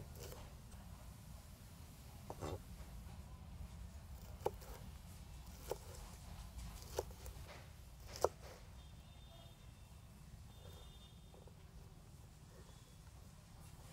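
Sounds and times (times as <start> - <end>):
knife chopping on plastic board: 4.2 - 4.8, 5.5 - 6.0, 6.7 - 8.5.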